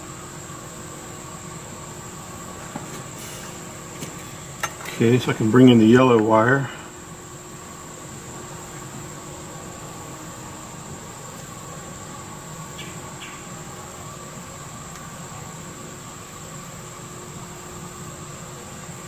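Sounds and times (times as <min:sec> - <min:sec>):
background hum: 0:00.0 - 0:19.0
high-pitched whine: 0:00.0 - 0:19.0.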